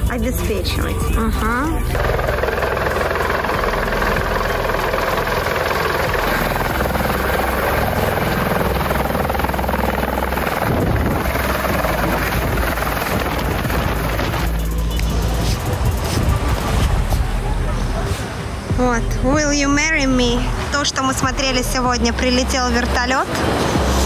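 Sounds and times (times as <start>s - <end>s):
helicopter rotor and engine: 1.7s - 17.6s.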